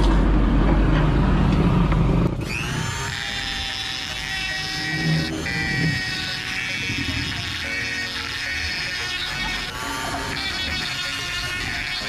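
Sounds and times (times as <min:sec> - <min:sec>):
power tool trimming metal: 0:02.4 - 0:12.0
music with long held tones: 0:03.3 - 0:12.0.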